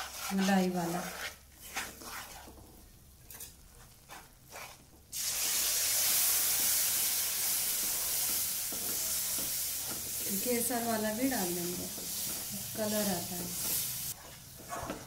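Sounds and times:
wooden spatula scraping pan: 0:00.0 - 0:02.9, 0:03.7 - 0:05.0, 0:07.8 - 0:15.0
loud sizzle: 0:05.1 - 0:15.0.

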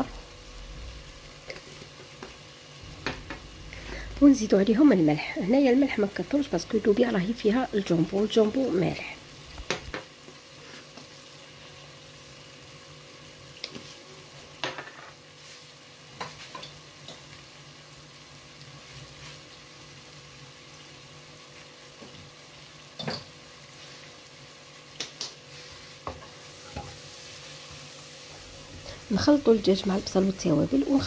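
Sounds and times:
food sizzling in a pan: 0:00.0 - 0:31.0.

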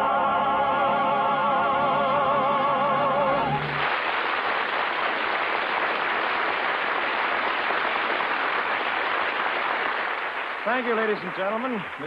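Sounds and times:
singing with orchestra: 0:00.0 - 0:03.8
audience applauding: 0:03.5 - 0:12.0.

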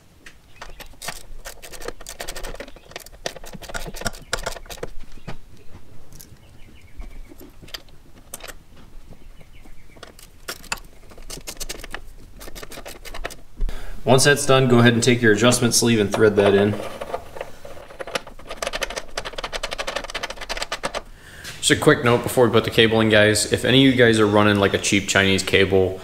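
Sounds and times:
hand tools clicking on metal: 0:00.2 - 0:08.7, 0:09.4 - 0:13.5, 0:15.4 - 0:21.1.

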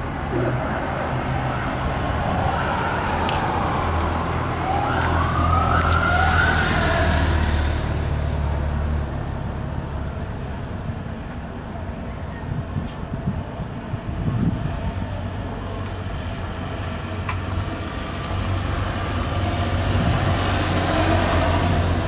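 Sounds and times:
low hum of vehicle engines: 0:00.0 - 0:22.0
police siren wailing: 0:01.2 - 0:07.6.

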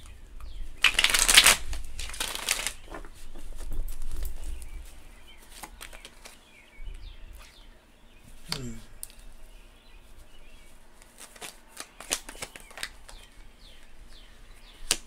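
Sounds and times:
cards shuffling: 0:00.8 - 0:04.5, 0:11.0 - 0:13.9, 0:14.8 - 0:15.0.

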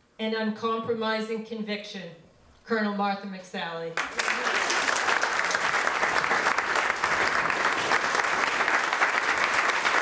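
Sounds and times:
crowd applauding: 0:04.0 - 0:10.0.

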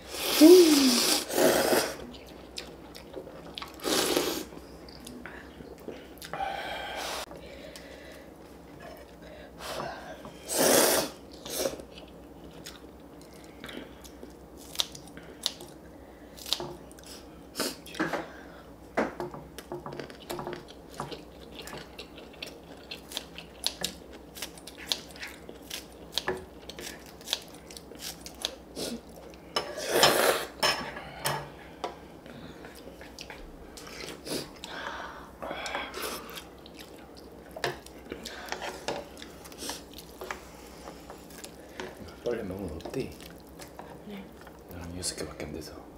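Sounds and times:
chewing: 0:02.0 - 0:03.9, 0:11.3 - 0:15.8, 0:19.6 - 0:29.5, 0:32.3 - 0:34.8, 0:35.6 - 0:44.7.

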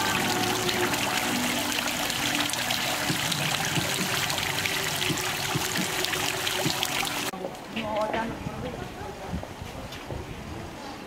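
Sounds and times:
fountain water splashing: 0:00.0 - 0:08.0.

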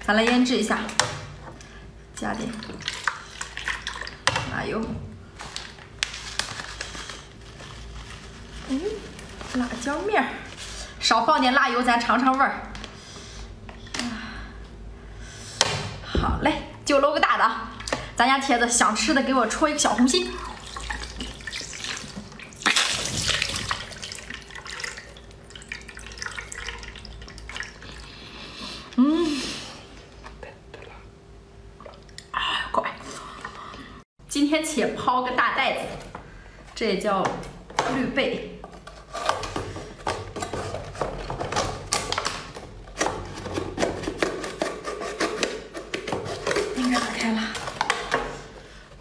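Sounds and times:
juice dripping: 0:19.8 - 0:28.4.

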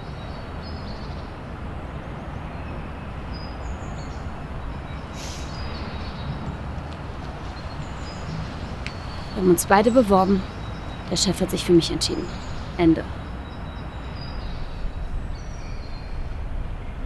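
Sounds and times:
distant traffic rumble: 0:00.0 - 0:17.0
small birds chirping: 0:02.2 - 0:16.4
brief hiss: 0:05.1 - 0:05.6.

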